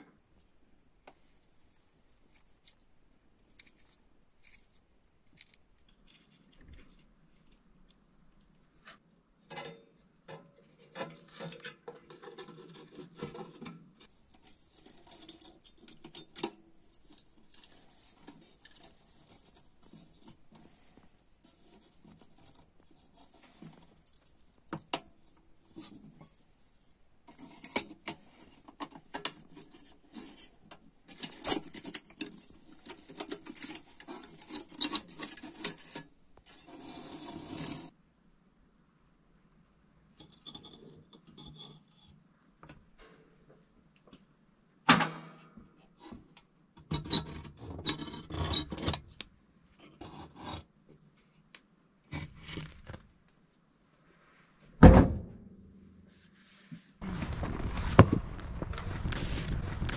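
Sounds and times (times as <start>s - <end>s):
metal parts rubbing and rattling: 11.2s - 20.8s, 27.3s - 37.9s.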